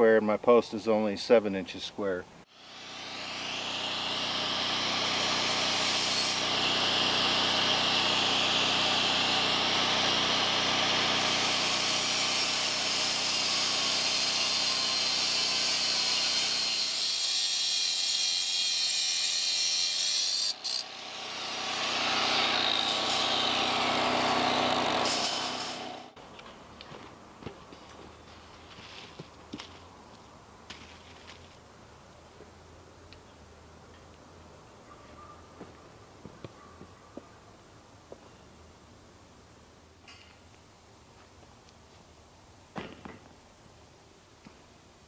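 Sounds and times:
power tool cutting wire fencing: 0:02.5 - 0:26.2.

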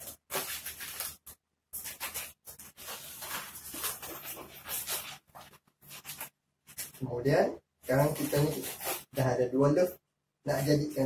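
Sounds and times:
balloons rubbing: 0:01.8 - 0:07.0, 0:07.9 - 0:09.3.

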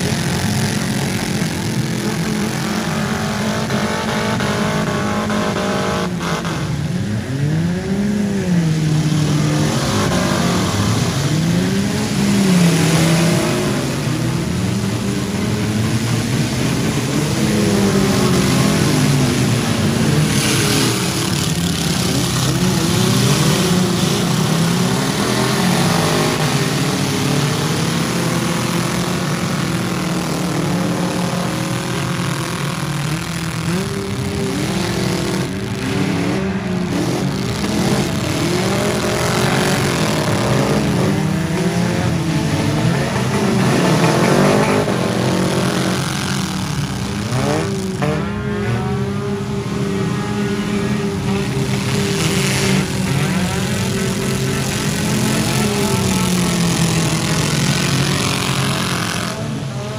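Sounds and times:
car engines revving: 0:00.0 - 0:59.9.

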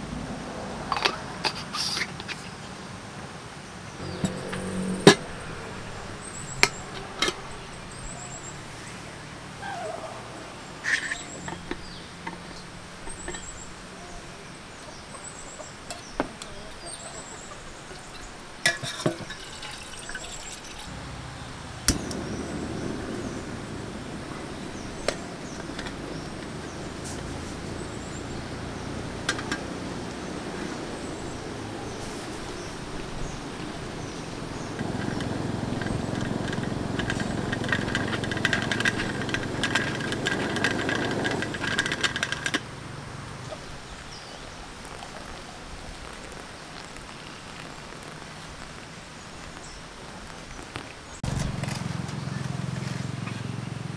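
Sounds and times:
water pouring into kettle: 0:18.7 - 0:20.9
coffee gear clicking and tapping: 0:34.8 - 0:42.6.

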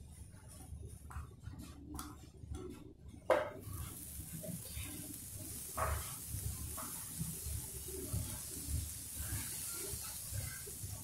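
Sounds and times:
butter sizzling in a pan: 0:03.4 - 0:11.0.

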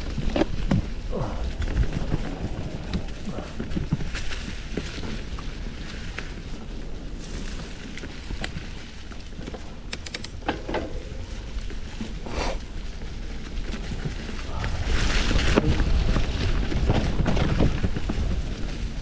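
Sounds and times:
bike rattling: 0:00.0 - 0:19.0
bike tyres rolling on dirt: 0:00.0 - 0:19.0
wind rumbling on microphone: 0:00.0 - 0:19.0
sharp clicks: 0:09.9 - 0:10.6.

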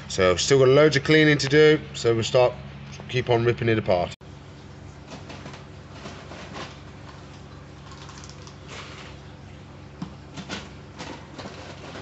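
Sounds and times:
steady low hum: 0:00.0 - 0:12.0
plastic scoop scraping clay balls: 0:11.2 - 0:12.0.

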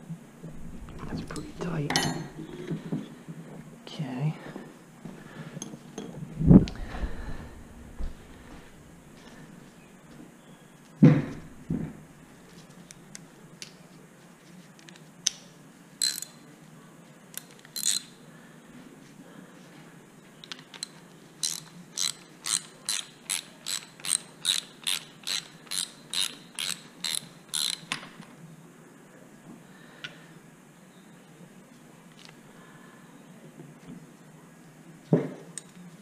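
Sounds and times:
socket ratchet clicking: 0:16.0 - 0:16.4, 0:17.7 - 0:18.1, 0:20.8 - 0:28.0.

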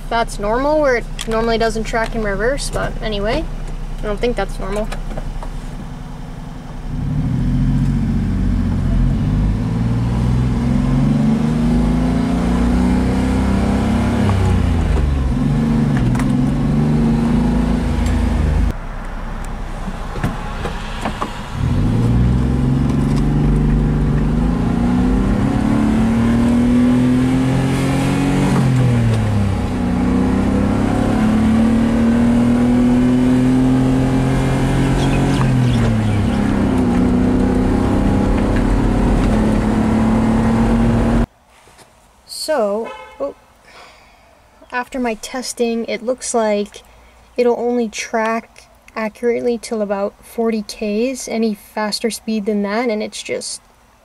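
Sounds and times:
small truck engine accelerating: 0:05.9 - 0:41.3.

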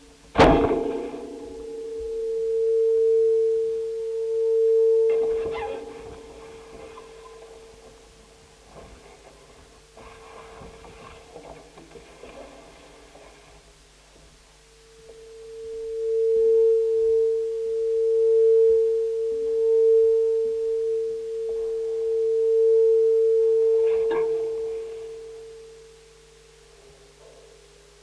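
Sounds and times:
steady pure tone: 0:00.0 - 0:28.0
short rustle: 0:08.7 - 0:13.8.

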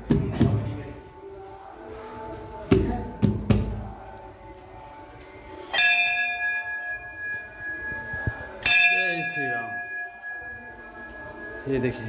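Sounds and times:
metal temple bell ringing: 0:05.7 - 0:12.0.

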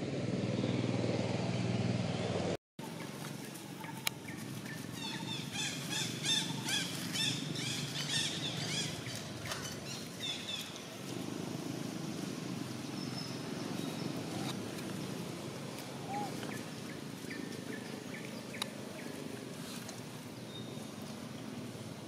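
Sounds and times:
animal chirping calls: 0:15.9 - 0:16.7.

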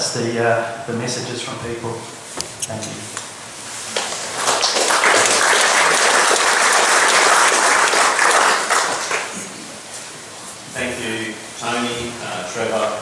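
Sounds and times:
audience applauding: 0:03.9 - 0:09.6.

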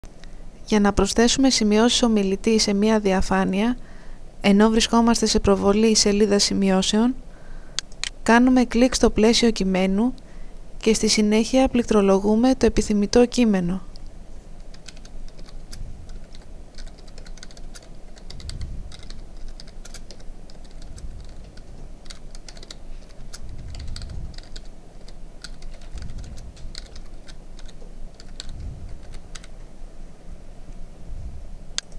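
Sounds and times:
dull low thumps: 0:28.5 - 0:29.0.

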